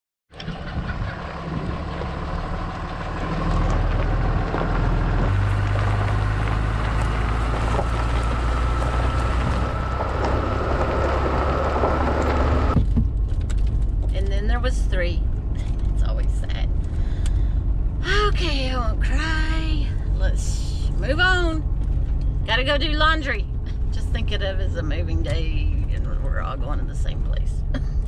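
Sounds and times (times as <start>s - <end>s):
wind on microphone: 0.3s - 13.0s
tyres on gravel: 0.3s - 17.0s
truck engine hum: 0.3s - 28.0s.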